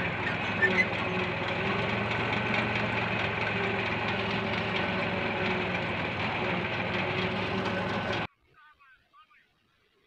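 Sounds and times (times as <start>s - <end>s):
tractor diesel engine under load: 0.0s - 8.3s.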